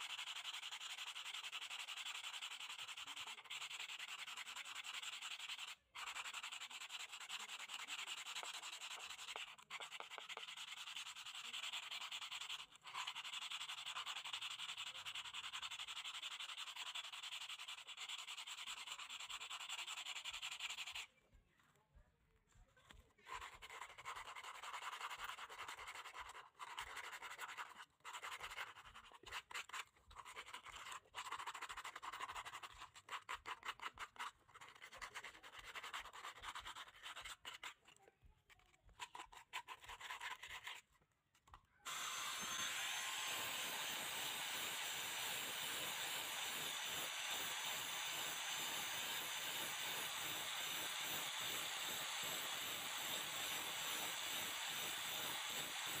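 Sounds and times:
angle grinder whine: 41.9s - 44.9s.

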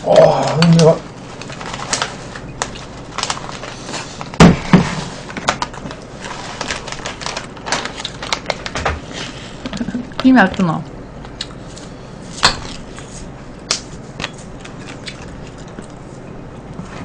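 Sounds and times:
plastic snack bag crinkling: 0.2s - 4.4s, 5.1s - 10.3s.

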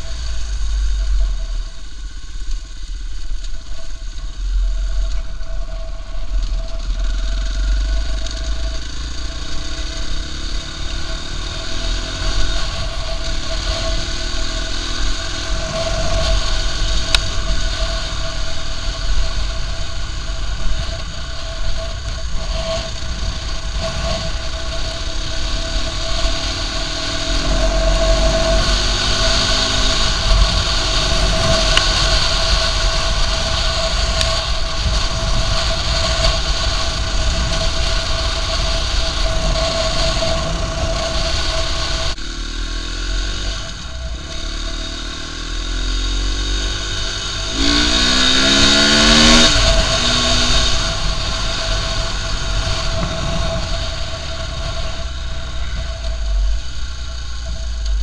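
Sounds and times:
deep rumble: 0.0s - 58.0s
motorcycle engine accelerating: 0.0s - 58.0s.

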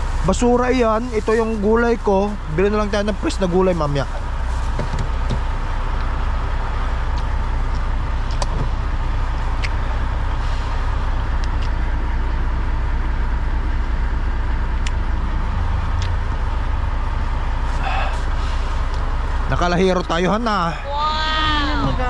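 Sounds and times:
vehicle engine idling: 0.0s - 22.0s.

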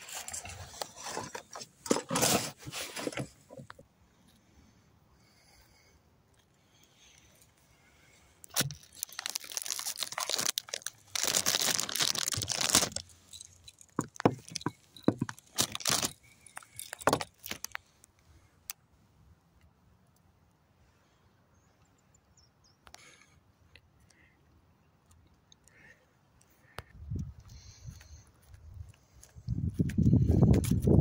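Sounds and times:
plastic packaging crinkling: 8.4s - 17.8s.

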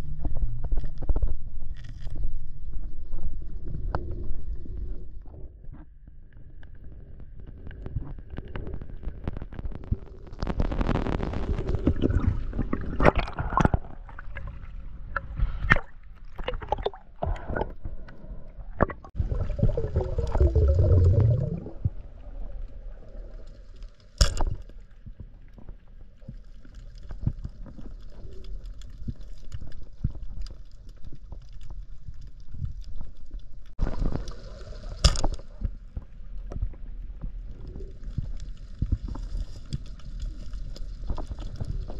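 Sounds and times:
bubbling water rushes: 10.5s - 17.8s, 18.6s - 23.5s
underwater clicks and knocks: 35.0s - 40.0s.

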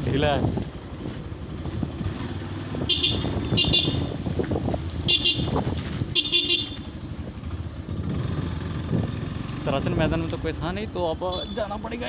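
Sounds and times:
wind noise: 0.0s - 9.2s
motorcycle engine running: 0.0s - 12.0s.

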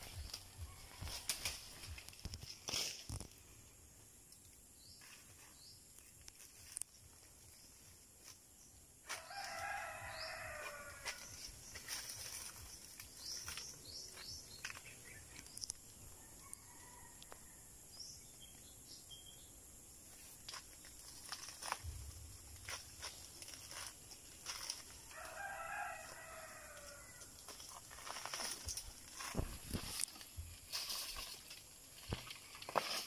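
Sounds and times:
rooster crowing: 9.1s - 11.3s, 16.2s - 17.7s, 25.0s - 27.3s.

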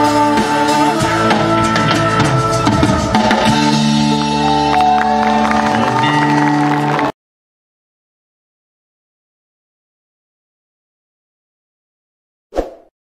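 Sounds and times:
live band music: 0.0s - 7.1s.

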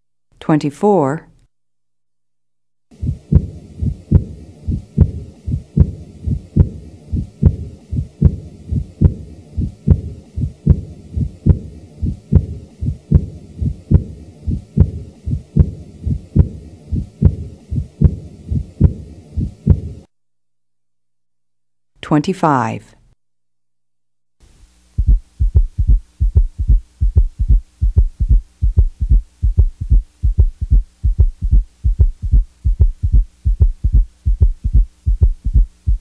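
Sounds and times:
heart murmur: 2.9s - 20.1s, 25.0s - 36.0s
heartbeat through stethoscope: 2.9s - 20.1s, 24.9s - 36.0s.

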